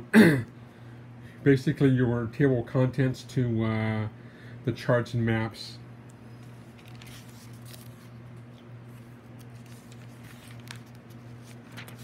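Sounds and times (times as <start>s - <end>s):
steady low hum: 0.0s - 12.0s
pages rustling: 6.4s - 12.0s.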